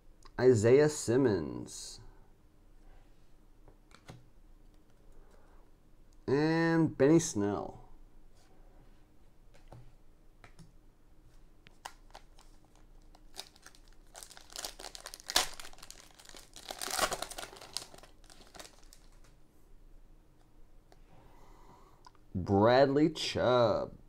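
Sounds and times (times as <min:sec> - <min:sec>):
cards being handled: 0:11.7 - 0:19.4
foil wrapper tearing and crinkling: 0:11.8 - 0:19.3.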